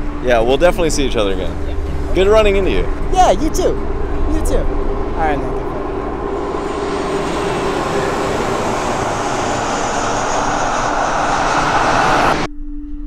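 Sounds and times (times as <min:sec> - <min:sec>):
loud rushing roar: 0:00.0 - 0:12.5
steady low hum: 0:00.0 - 0:12.8.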